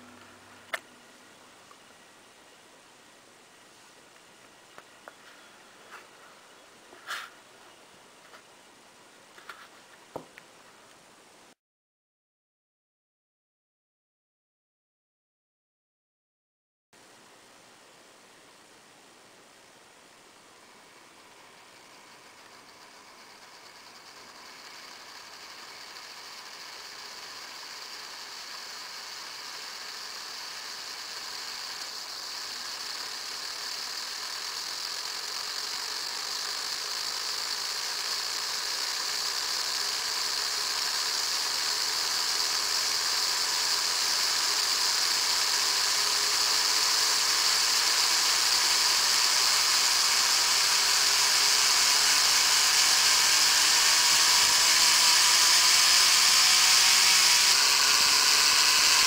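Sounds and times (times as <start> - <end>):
turbine whine rising in pitch: 0.0 - 2.5, 20.6 - 59.0
turbine air hiss: 0.0 - 4.4, 17.6 - 59.0.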